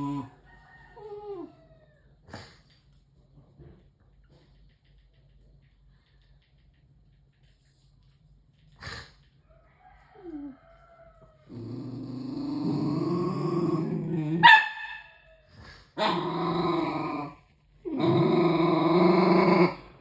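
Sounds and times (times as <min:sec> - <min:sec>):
puppy growling: 0:00.0 - 0:00.4, 0:11.4 - 0:14.5, 0:15.6 - 0:20.0
puppy barking: 0:14.4 - 0:15.3.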